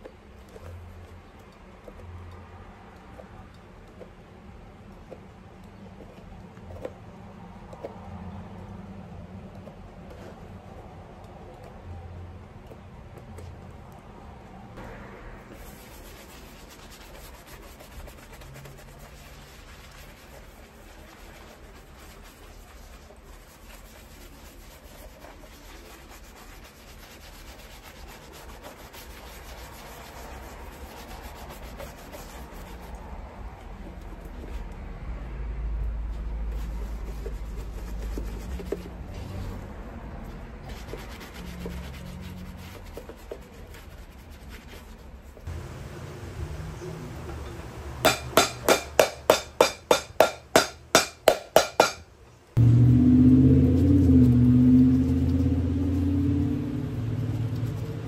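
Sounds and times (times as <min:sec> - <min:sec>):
brush scrubbing leather boot: 0:15.5 - 0:33.2, 0:36.4 - 0:45.5, 0:57.1 - 0:58.0.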